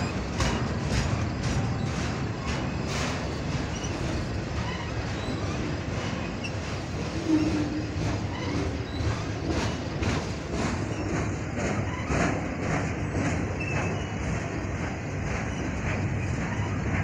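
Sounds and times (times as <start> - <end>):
train wheel squeal: 0.0 - 17.0
train wheels rumbling on rails: 0.0 - 17.0
wheels clicking over rail joints: 0.0 - 17.0.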